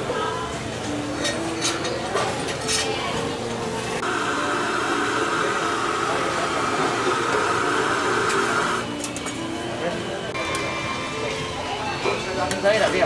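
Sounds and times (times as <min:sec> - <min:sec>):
gas burner hissing: 0:04.0 - 0:08.9.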